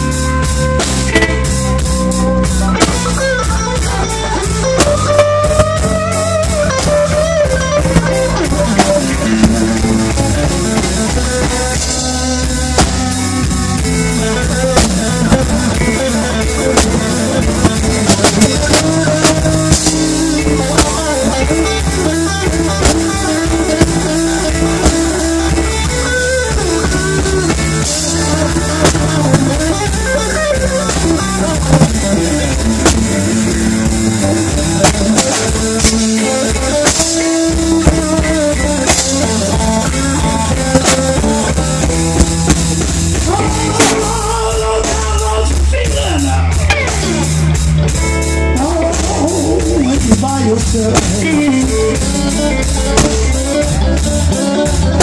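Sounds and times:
drum kit beat: 0:00.0 - 0:55.0
electric bass: 0:00.0 - 0:55.0
electric guitar lead lines: 0:00.0 - 0:55.0.

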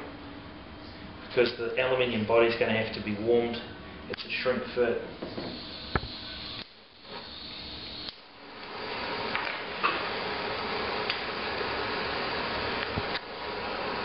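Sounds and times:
butane torch hissing: 0:05.2 - 0:14.0.

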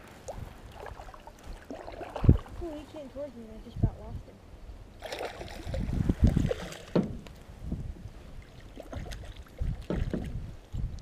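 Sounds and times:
fish splashing at the surface: 0:05.0 - 0:07.0
thumps and knocks on a boat: 0:06.7 - 0:07.4, 0:09.6 - 0:10.5.

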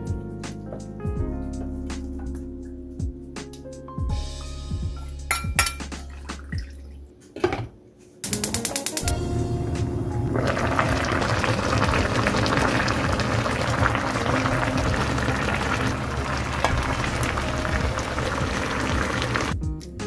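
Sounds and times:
background music: 0:00.0 - 0:20.0
thick sauce bubbling in a pan: 0:10.4 - 0:19.5.

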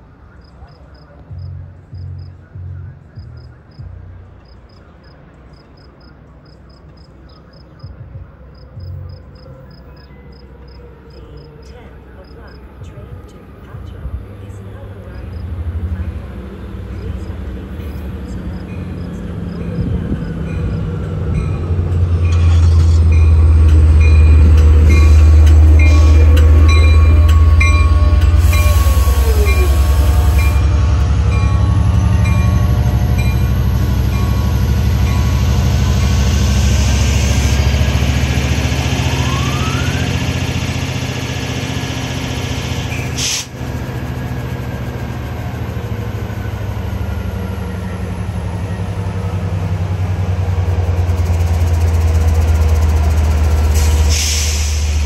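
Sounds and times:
diesel train engine drone: 0:00.0 - 0:55.0
train wheels rolling: 0:12.4 - 0:55.0.

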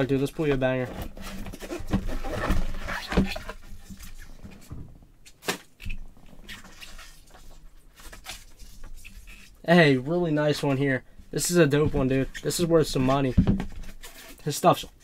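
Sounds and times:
cardboard box rustling: 0:00.3 - 0:04.5.

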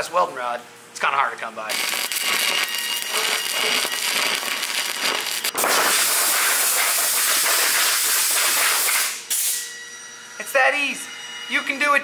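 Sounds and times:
steady loud hiss: 0:01.7 - 0:09.6
welding arc crackling: 0:01.7 - 0:09.6.

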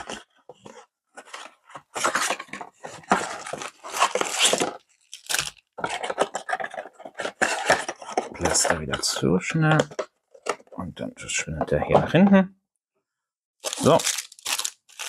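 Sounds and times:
rustling and scraping packaging: 0:00.0 - 0:12.2, 0:13.6 - 0:15.0
packaging being torn open: 0:04.0 - 0:05.6, 0:13.6 - 0:15.0.

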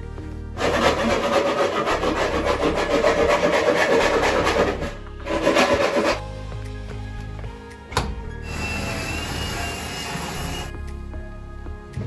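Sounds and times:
loud rough scraping: 0:00.6 - 0:06.2.

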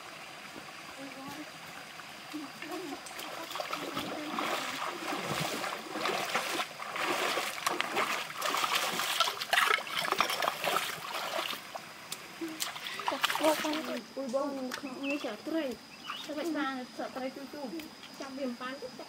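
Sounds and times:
water trickling over rocks: 0:00.0 - 0:16.4
feet splashing through water: 0:00.6 - 0:14.0.

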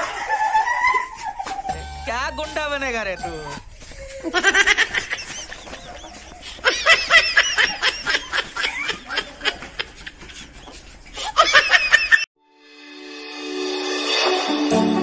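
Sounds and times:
person giggling: 0:04.2 - 0:12.2
music: 0:12.4 - 0:15.0.

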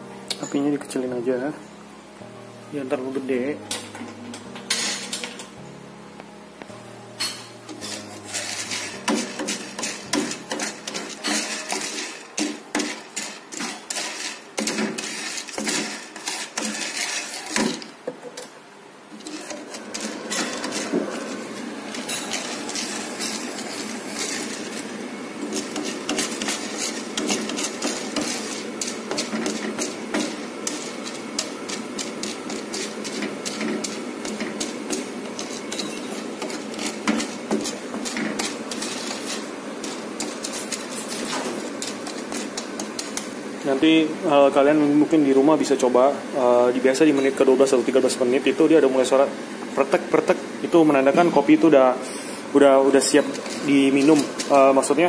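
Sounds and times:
coffee beans rattling in a pan: 0:07.8 - 0:17.9, 0:19.2 - 0:43.8, 0:52.9 - 0:55.0.

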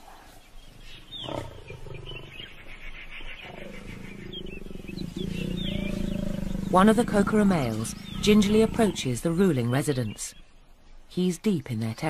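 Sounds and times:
lion growling: 0:00.8 - 0:02.5, 0:03.4 - 0:09.4.

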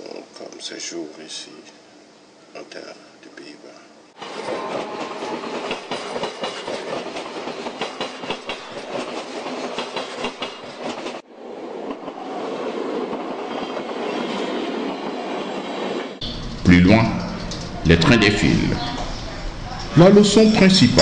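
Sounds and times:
train wheels clattering: 0:04.2 - 0:11.2.

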